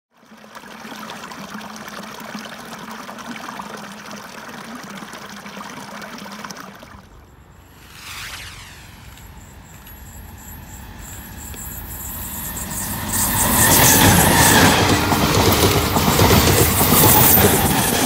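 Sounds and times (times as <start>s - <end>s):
stream trickling over rocks: 0.1s - 7.6s
falling sweep: 6.9s - 11.4s.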